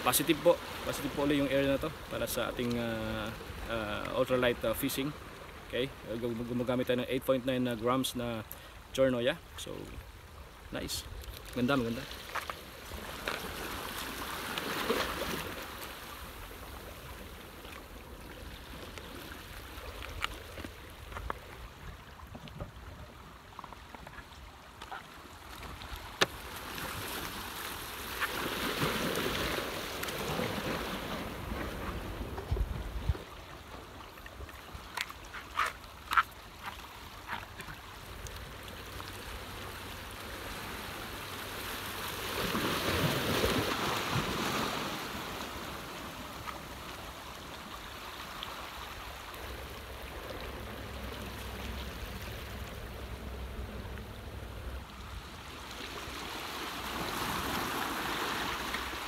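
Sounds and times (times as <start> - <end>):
sea waves washing in and out: 0.0 - 59.0.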